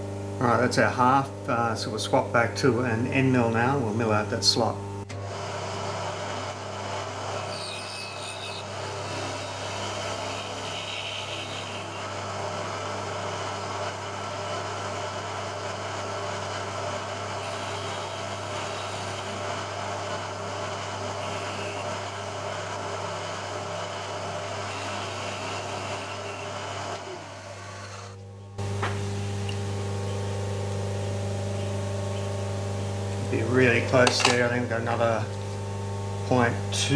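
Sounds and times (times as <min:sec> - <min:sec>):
motor hum: 0:00.0 - 0:36.9
milling machine cutting metal: 0:05.1 - 0:28.2, 0:33.2 - 0:35.5.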